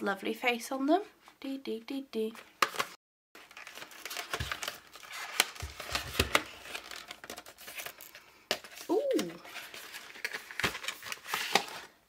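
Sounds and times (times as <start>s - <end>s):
cardboard rustling and crinkling: 2.6s - 12.0s.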